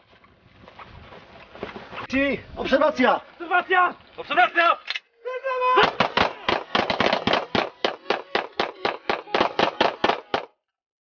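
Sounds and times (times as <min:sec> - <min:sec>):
pistols firing rapidly: 0:05.8 - 0:10.5.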